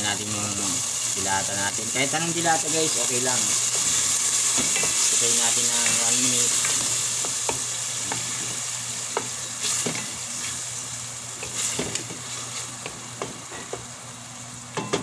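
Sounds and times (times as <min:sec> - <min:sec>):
food sizzling in a pan: 0:00.0 - 0:15.0.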